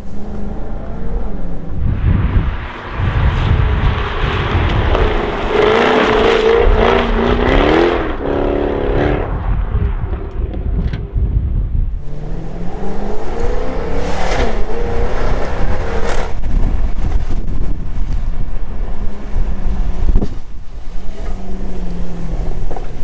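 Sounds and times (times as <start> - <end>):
wheels spinning on wet road: 0.0 - 10.8, 12.0 - 23.0
car engine revving hard: 0.3 - 9.4.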